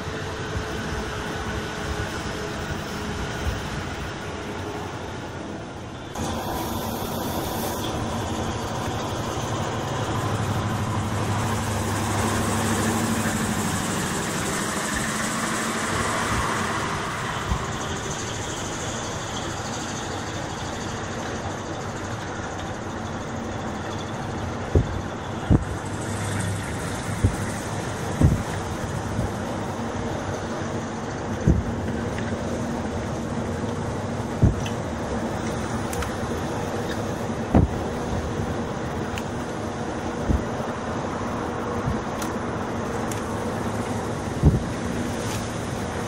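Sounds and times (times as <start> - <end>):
road rumble in truck cab: 0.0 - 46.0
truck engine: 0.0 - 46.0
sharp knocks: 28.2 - 28.6, 31.4 - 32.0, 34.4 - 34.8, 37.5 - 37.9, 44.4 - 44.7.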